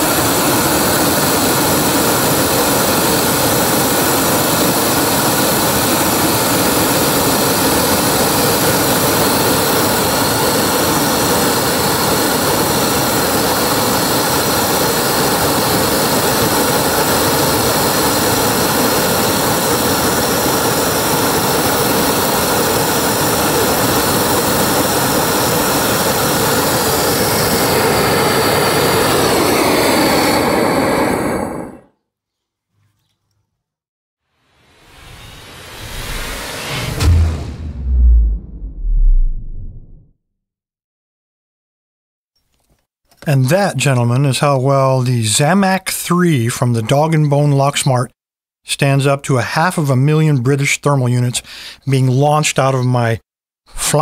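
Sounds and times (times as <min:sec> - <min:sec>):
gas torch blasting: 0:00.0 - 0:31.9.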